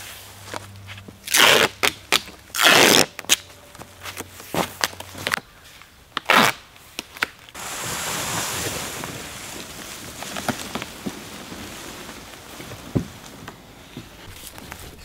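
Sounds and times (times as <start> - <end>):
cardboard scraping over leaves: 7.6 - 15.0.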